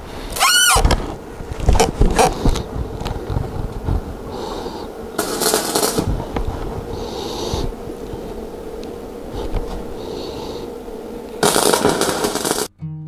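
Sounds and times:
welding arc crackling and sizzling: 0.0s - 12.7s
welding electrode striking clicks: 11.4s - 12.7s.

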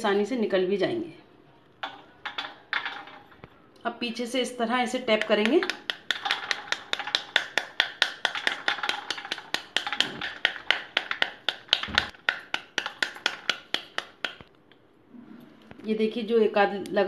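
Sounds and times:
rapid tapping on fruit rind: 1.8s - 3.5s, 4.9s - 14.6s
seeds dropping onto steel plate: 1.8s - 3.6s.

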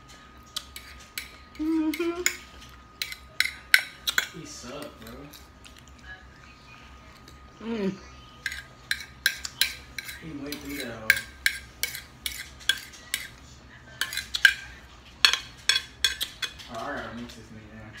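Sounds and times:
metal fork scraping a plate: 3.0s - 5.4s, 8.4s - 13.4s, 14.0s - 14.6s.

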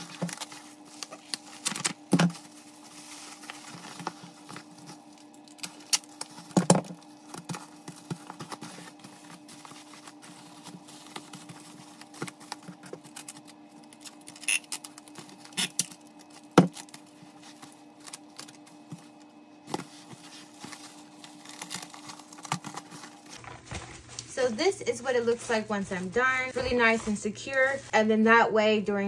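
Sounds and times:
bubble wrap crinkling: 0.0s - 27.9s
faint steady hum: 0.0s - 29.0s.

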